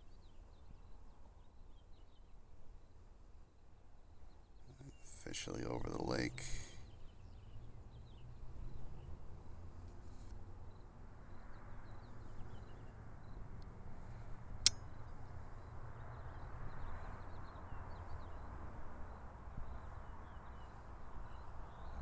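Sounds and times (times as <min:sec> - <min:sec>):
faint bird chirps: 0:04.1 - 0:08.8
sharp click: 0:14.6 - 0:14.8.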